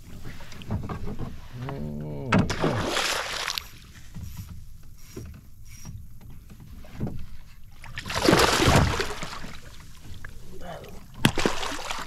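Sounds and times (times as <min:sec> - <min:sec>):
fish thrashing and splashing: 0:02.5 - 0:03.9, 0:07.8 - 0:10.4, 0:11.0 - 0:12.0.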